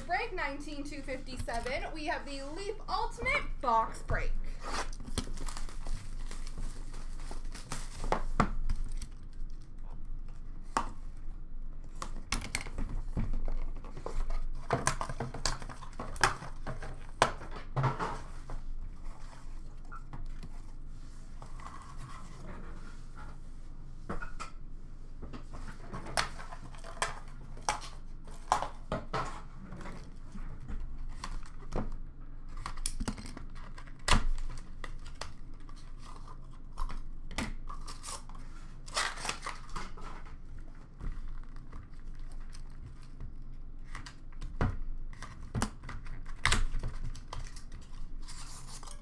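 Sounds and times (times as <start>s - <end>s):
plastic wrap crinkling and tearing: 4.5s - 10.0s, 32.5s - 44.3s.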